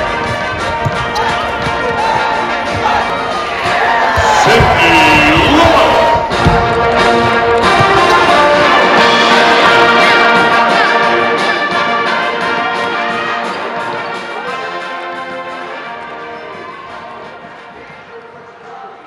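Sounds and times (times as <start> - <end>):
brass music with held chords: 4.5 - 16.6.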